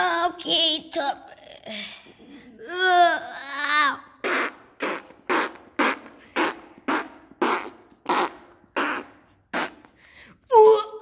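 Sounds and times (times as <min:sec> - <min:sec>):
fart noises: 0:04.1 - 0:10.0.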